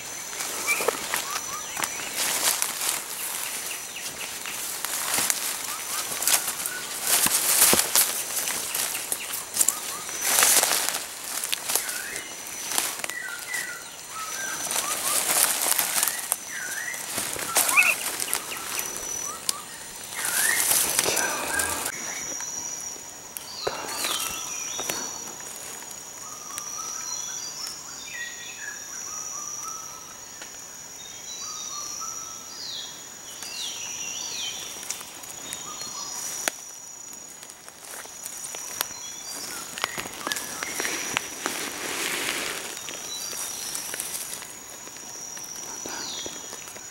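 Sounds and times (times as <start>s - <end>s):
birds chirping: 0.0s - 28.4s, 38.6s - 46.9s
leaf litter crunching underfoot: 0.1s - 22.0s, 34.5s - 46.9s.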